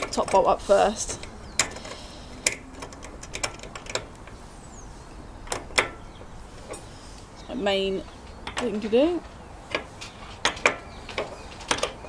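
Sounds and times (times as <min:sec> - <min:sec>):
hand tool clicking on metal: 0:00.0 - 0:04.4.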